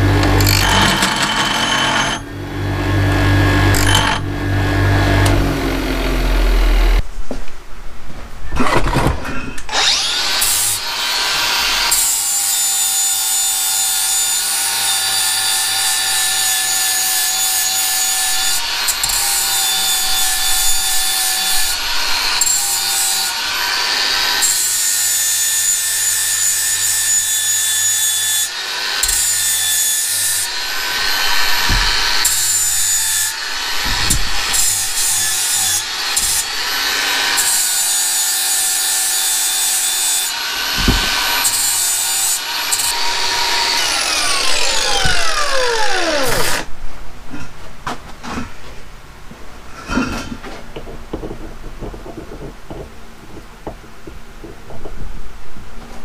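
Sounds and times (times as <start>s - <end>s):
angle grinder grinding metal: 0.0s - 7.0s, 9.7s - 46.7s.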